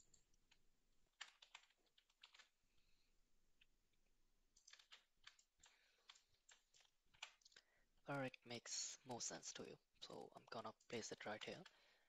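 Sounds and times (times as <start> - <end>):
keyboard keystrokes: 1.2 - 2.5, 4.6 - 5.4, 6.1 - 7.4.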